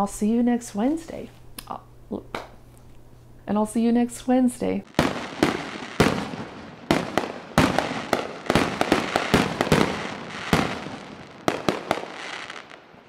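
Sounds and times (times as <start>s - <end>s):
fireworks bangs and crackle: 4.8s - 13.0s.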